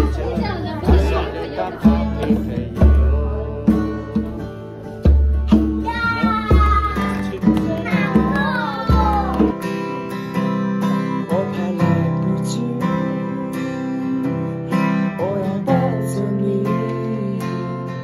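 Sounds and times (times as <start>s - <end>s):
man singing: 0.0s - 9.4s, 10.8s - 18.0s
acoustic guitar strumming: 0.0s - 18.0s.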